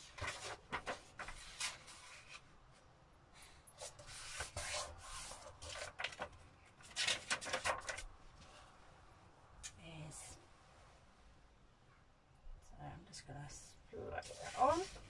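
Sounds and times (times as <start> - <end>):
paper rustling: 0.0 - 2.5, 3.7 - 8.6, 14.2 - 15.0.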